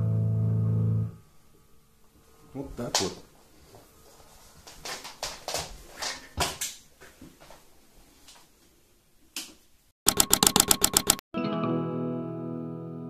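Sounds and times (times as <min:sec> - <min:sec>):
fast sharp clicks: 0:10.1 - 0:11.2.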